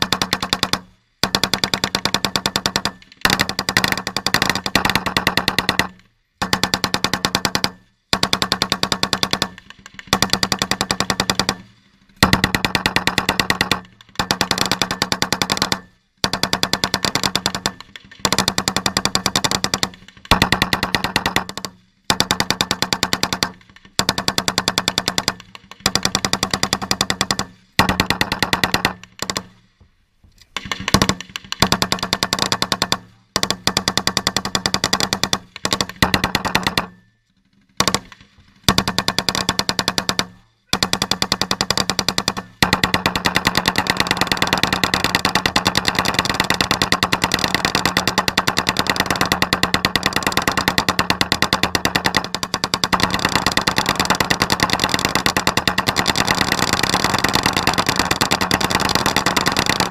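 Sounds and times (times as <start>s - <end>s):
machine gun bursts: 37.8s - 59.9s.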